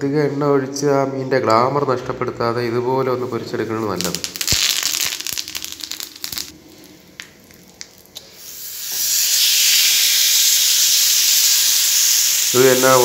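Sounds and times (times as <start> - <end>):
oil popping: 4.0 - 12.6
fish sizzling in hot oil: 4.3 - 6.8, 7.9 - 13.0.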